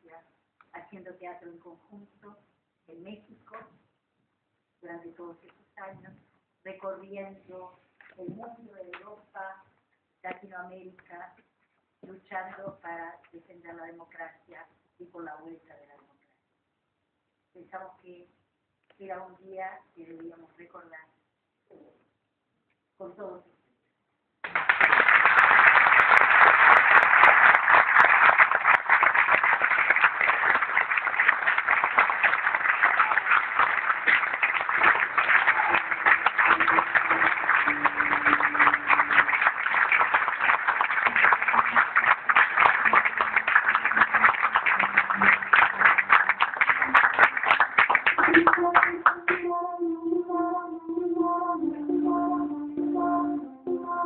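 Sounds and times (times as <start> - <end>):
audience applauding: 24.4 - 49.4
faint music: 35.0 - 40.0.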